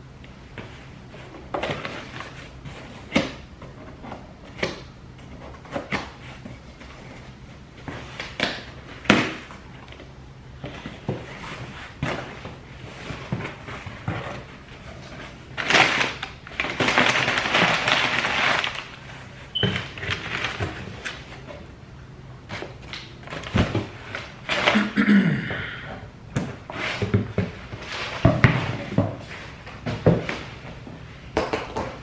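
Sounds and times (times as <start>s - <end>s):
packing paper crinkling: 15.6s - 21.4s.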